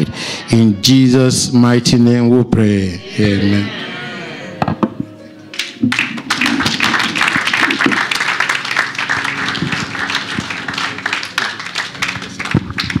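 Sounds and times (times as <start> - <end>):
congregation applauding: 5.5 - 13.0.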